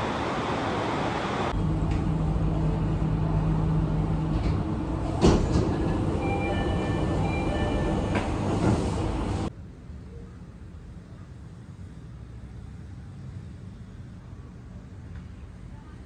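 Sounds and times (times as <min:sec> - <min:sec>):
train carriage rumble: 0:00.0 - 0:09.5.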